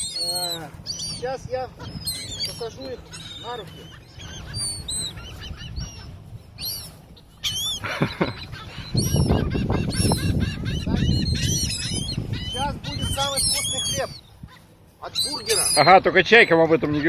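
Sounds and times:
gulls calling: 0.0s - 17.0s.

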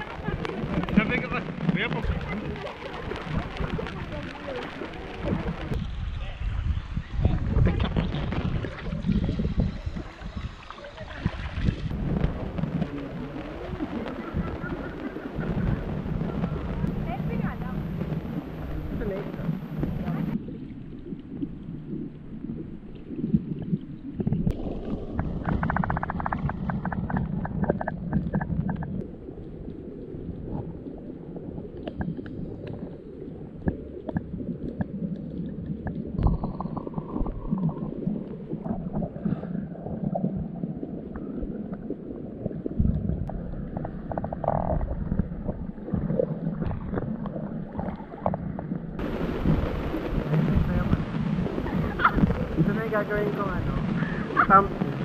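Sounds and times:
underwater clicks: 0.0s - 5.8s, 22.9s - 55.0s
bubbles: 0.0s - 6.1s, 6.7s - 55.0s
muffled underwater rumbling: 0.0s - 55.0s.

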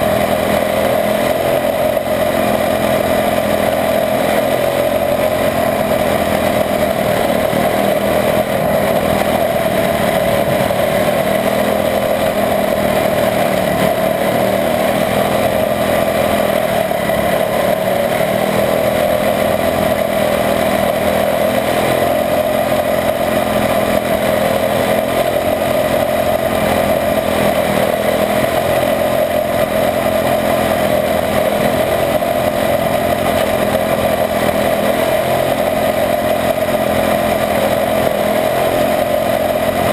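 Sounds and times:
race car engine at high revs: 0.0s - 39.9s.

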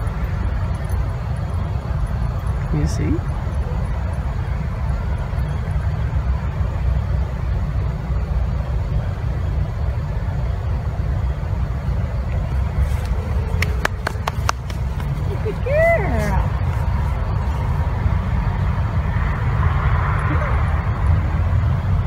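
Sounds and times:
wind buffeting microphone: 11.7s - 19.0s.

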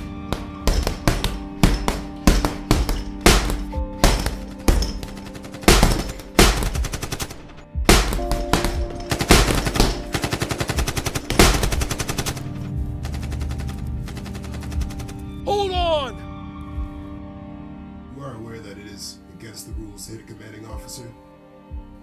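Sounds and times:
dramatic music score: 0.0s - 22.0s
echoing gunshots: 0.6s - 15.3s.

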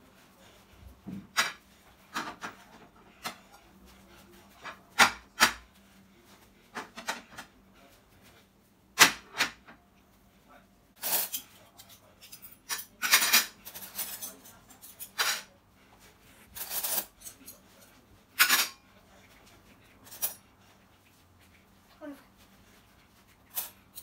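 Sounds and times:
cutlery clattering on glass: 11.0s - 15.5s, 18.4s - 18.8s.

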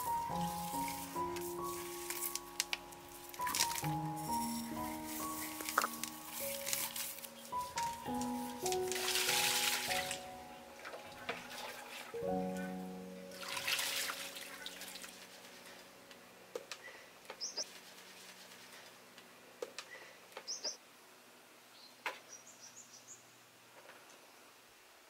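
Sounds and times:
small birds chirping: 3.4s - 8.9s, 16.7s - 17.7s, 19.8s - 20.8s, 21.7s - 23.4s
water splashing: 5.4s - 12.6s, 13.3s - 15.6s.

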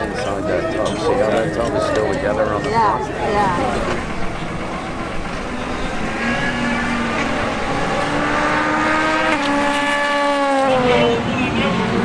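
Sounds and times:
race car engine accelerating: 3.0s - 12.0s.

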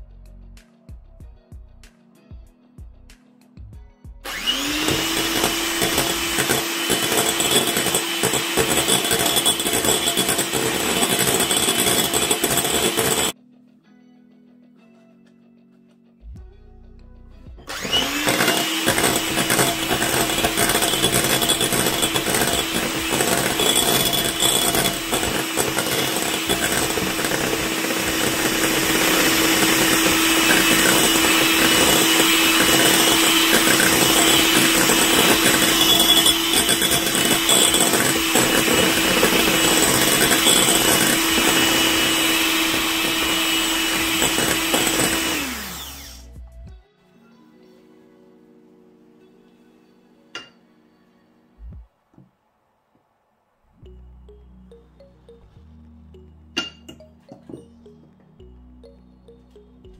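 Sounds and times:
electric hand mixer whisking: 4.3s - 13.4s, 17.7s - 46.3s.

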